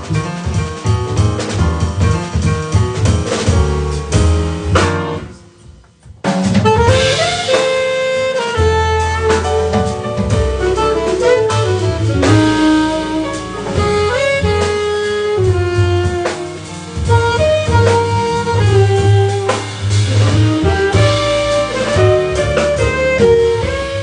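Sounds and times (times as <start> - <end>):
jazz band playing: 0.0 - 24.0
saxophone melody: 6.6 - 24.0.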